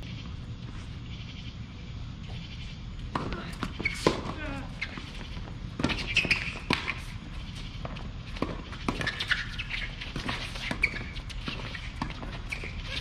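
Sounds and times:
shoes squeaking on court: 2.2s - 13.0s
tennis ball bouncing on court: 3.0s - 13.0s
tennis ball struck by racquets: 3.1s - 4.5s, 5.8s - 7.1s.

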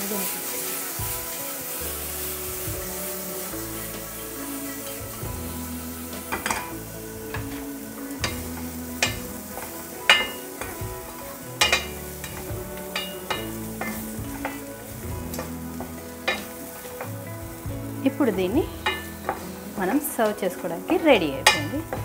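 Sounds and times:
chicken sizzling in oil: 0.0s - 22.0s
spatula clinking against pan: 8.2s - 10.8s, 11.6s - 14.6s, 15.3s - 17.1s, 18.8s - 19.4s, 21.4s - 22.0s.

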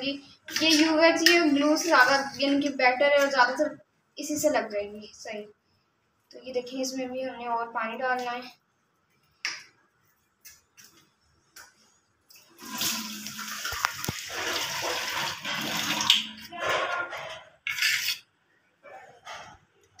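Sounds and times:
tap water splashing into sink: 12.6s - 16.4s.

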